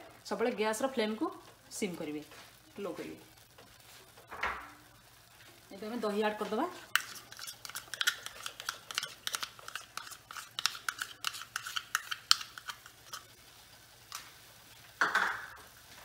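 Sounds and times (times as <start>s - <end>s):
spoon scraping plastic tub: 7.0s - 13.2s.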